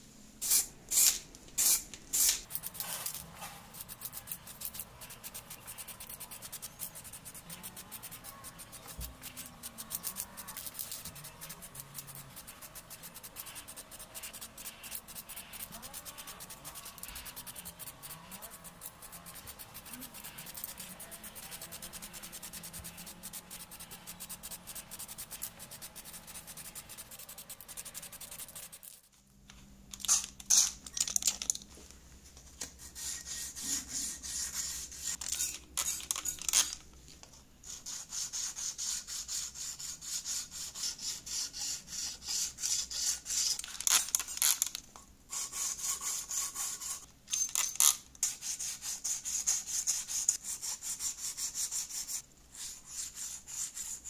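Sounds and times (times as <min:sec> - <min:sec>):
sanding block rubbing metal: 0:32.8 - 0:36.1, 0:37.7 - 0:43.7, 0:45.3 - 0:47.0, 0:48.2 - 0:54.0.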